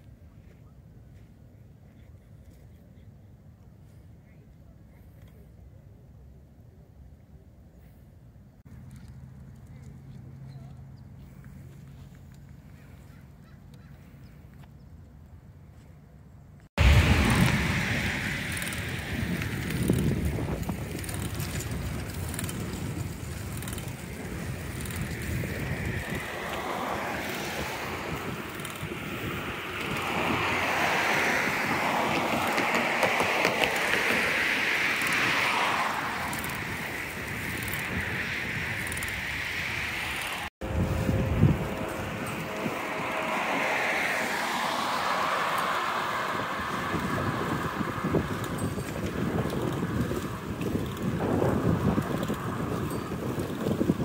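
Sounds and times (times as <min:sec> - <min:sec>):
wind noise on microphone: 0:16.8 - 0:54.0.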